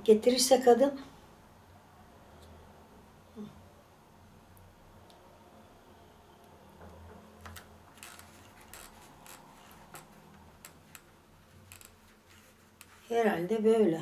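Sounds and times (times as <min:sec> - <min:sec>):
low room hum: 0:00.0 - 0:14.0
foam tape clicks and rustles: 0:07.4 - 0:13.0.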